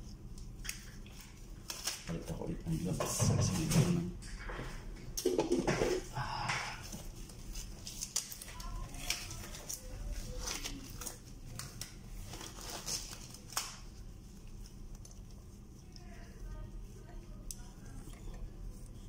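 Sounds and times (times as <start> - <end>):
disposable gloves rustling and snapping: 0.1 - 2.3, 6.8 - 16.4.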